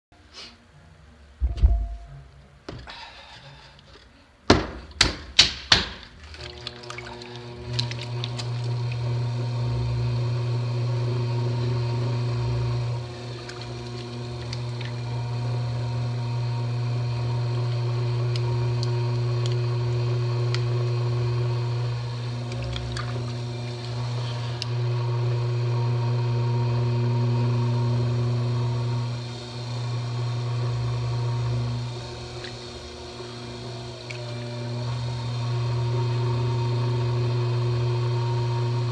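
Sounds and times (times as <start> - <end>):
potter's wheel motor hum: 6.6 - 38.9.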